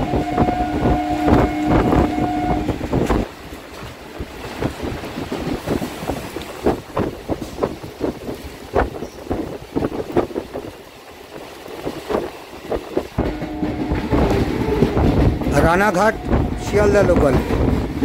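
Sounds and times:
two-note train horn: 0:00.0 - 0:02.8, 0:13.2 - 0:15.0, 0:15.7 - 0:17.3
wind on open window: 0:00.0 - 0:18.0
train wheels clattering: 0:11.4 - 0:18.0.

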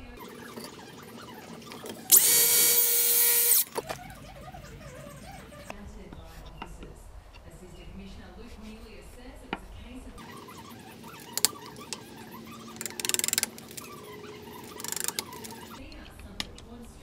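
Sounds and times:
fast clicking: 0:10.2 - 0:17.0.

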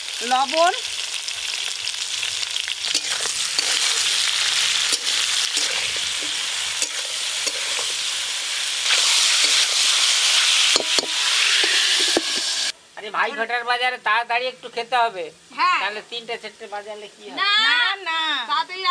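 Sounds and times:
vegetables sizzling in oil: 0:00.0 - 0:18.9
metal spatula scraping pan: 0:02.8 - 0:08.1, 0:08.8 - 0:12.7.

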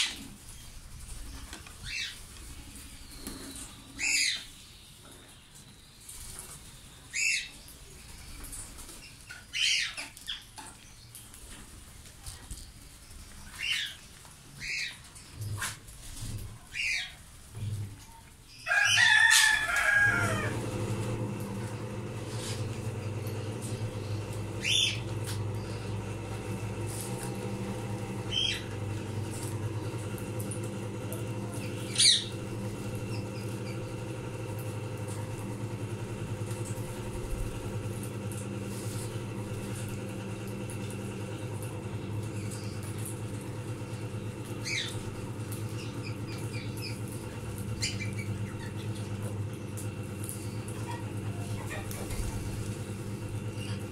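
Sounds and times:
wing flapping and squawking: 0:00.0 - 0:04.5, 0:12.4 - 0:17.2, 0:18.7 - 0:53.9
parakeets calling: 0:01.2 - 0:02.2, 0:03.0 - 0:04.5, 0:07.1 - 0:07.6, 0:09.0 - 0:10.5, 0:13.4 - 0:14.0, 0:14.6 - 0:15.0, 0:16.7 - 0:17.2, 0:18.5 - 0:35.8, 0:42.3 - 0:49.3, 0:53.5 - 0:53.9
steady low hum: 0:14.6 - 0:53.9.

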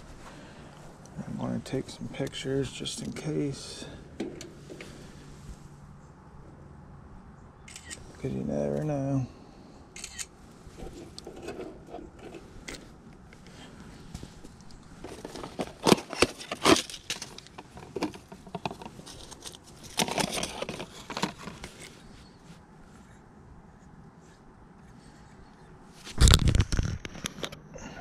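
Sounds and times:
handling clicks and scrapes: 0:00.0 - 0:05.6, 0:10.0 - 0:23.2.

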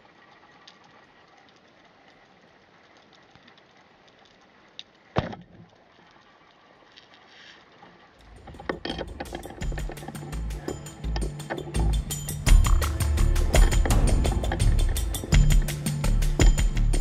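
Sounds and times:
faint underwater hiss: 0:06.1 - 0:08.1
background music with steady beat: 0:08.2 - 0:17.0.

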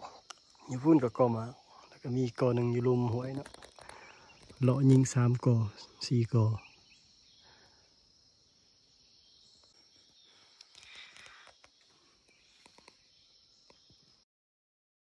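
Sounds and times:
high-pitched insect drone: 0:00.0 - 0:14.2
faint clicks: 0:10.5 - 0:13.0.

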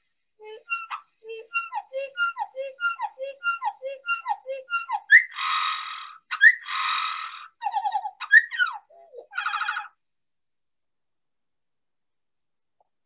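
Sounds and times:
slowed-down sparrow song: 0:00.4 - 0:05.6.

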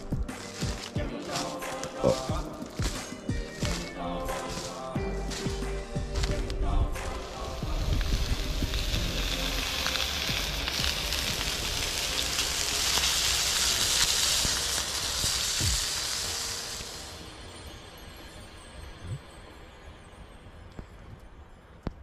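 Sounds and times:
campfire wood crackling: 0:00.0 - 0:22.0
meat sizzling in a pan: 0:07.2 - 0:17.3.

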